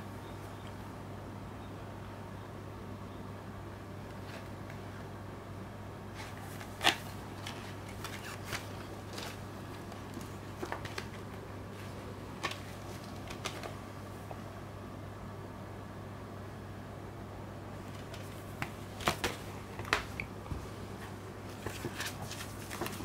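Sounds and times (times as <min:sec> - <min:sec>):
low background hum: 0:00.0 - 0:23.0
packaging rustling: 0:06.2 - 0:13.8, 0:17.8 - 0:20.3, 0:21.5 - 0:23.0.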